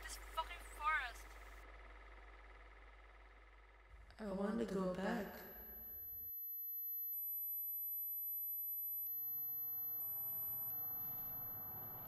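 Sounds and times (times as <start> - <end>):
outdoor ambience: 0.0 - 6.2, 9.0 - 12.0
high-pitched ringing tone: 0.0 - 12.0.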